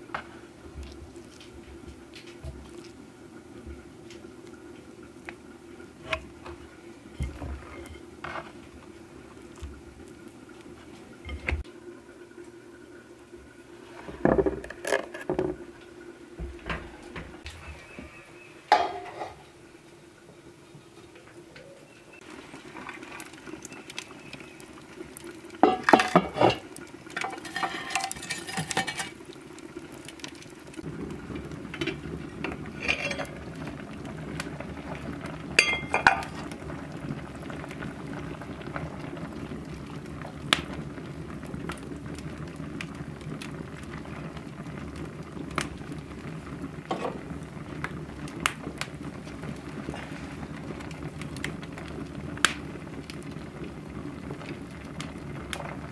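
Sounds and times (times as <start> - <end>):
jam bubbling in a pot: 0.0 - 19.6, 20.2 - 55.9
burning logs crackling: 0.0 - 20.4, 21.2 - 55.9
metal cookware clanking: 18.7 - 19.5, 25.6 - 29.2, 32.7 - 33.3, 35.6 - 36.5.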